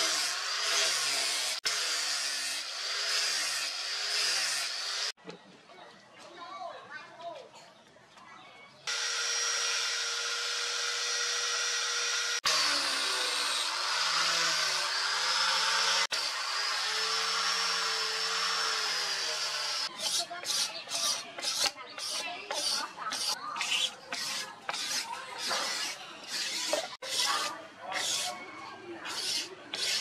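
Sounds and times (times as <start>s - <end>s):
angle grinder sanding wood: 0.0s - 5.1s, 8.9s - 28.4s, 29.0s - 30.0s
hand file rasping wood: 16.9s - 28.4s, 29.0s - 30.0s.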